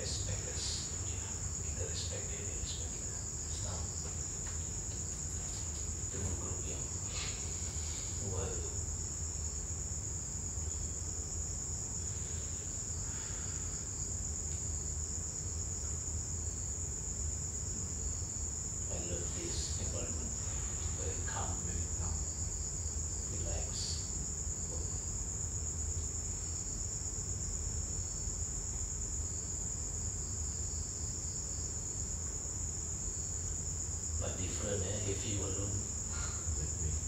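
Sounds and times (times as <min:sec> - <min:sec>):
crickets chirring: 0:00.0 - 0:37.0
faint low voices: 0:08.2 - 0:08.8, 0:34.2 - 0:37.0.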